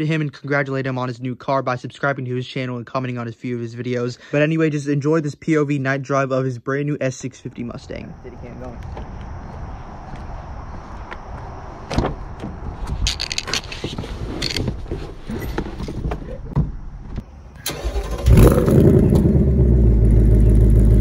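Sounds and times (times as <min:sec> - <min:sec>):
sharp thump: 0:11.9 - 0:12.6
car engine starting and idling: 0:17.4 - 0:21.0.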